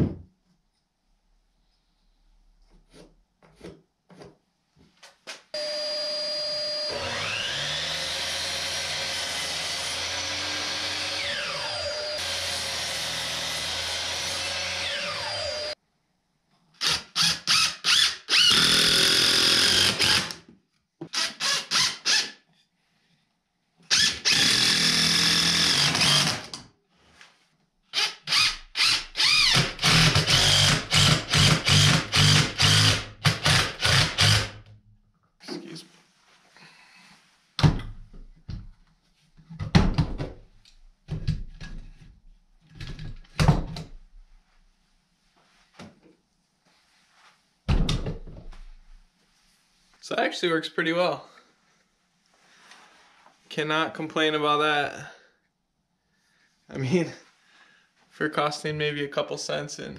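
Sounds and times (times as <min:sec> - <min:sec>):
cordless drill whining: 0:05.6 - 0:15.8, 0:16.8 - 0:20.4, 0:23.9 - 0:26.6, 0:28.0 - 0:34.6
impact driver bursts: 0:16.8 - 0:20.4, 0:23.9 - 0:26.6, 0:28.0 - 0:34.6.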